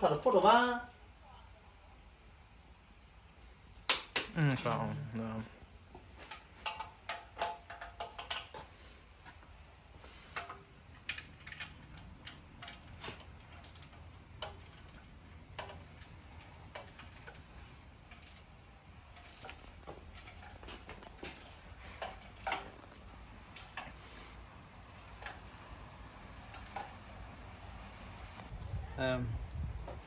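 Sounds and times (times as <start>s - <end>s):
metal tools clinking: 6.0s - 27.2s.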